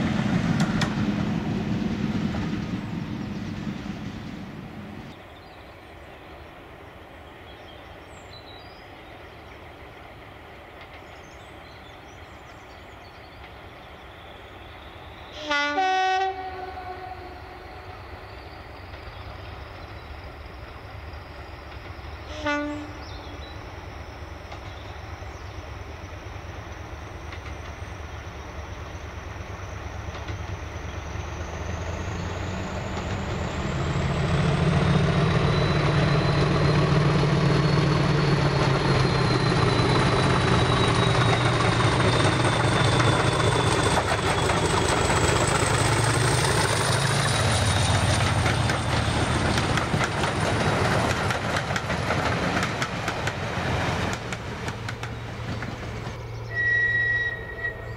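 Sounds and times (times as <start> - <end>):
train wheels clicking over rail joints: 0.0 - 4.0, 26.4 - 56.5
diesel locomotive engine hum: 0.0 - 57.9
turbocharger whistle: 56.5 - 57.9.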